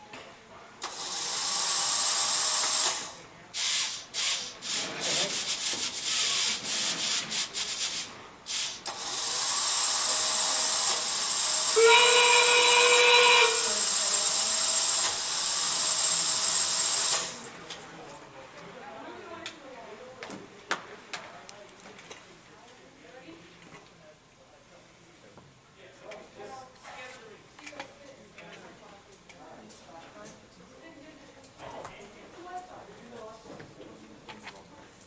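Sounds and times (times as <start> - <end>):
electric motors whirring: 0.8 - 17.5.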